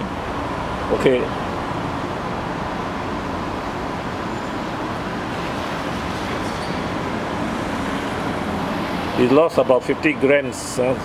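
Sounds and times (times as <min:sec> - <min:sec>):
road traffic rumble and hiss: 0:00.0 - 0:11.0.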